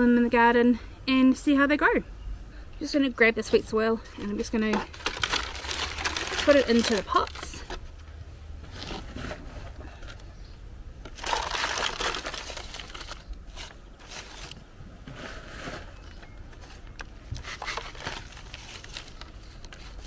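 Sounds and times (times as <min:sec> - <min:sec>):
soil rustling and scraping: 0:03.4 - 0:08.0, 0:08.6 - 0:10.3, 0:11.1 - 0:20.0.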